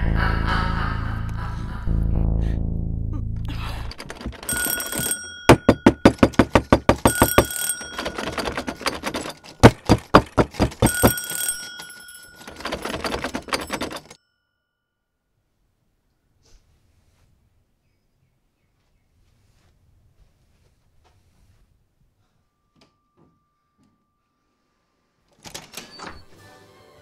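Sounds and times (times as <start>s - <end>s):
mechanical bell ringing: 4.0s - 14.8s.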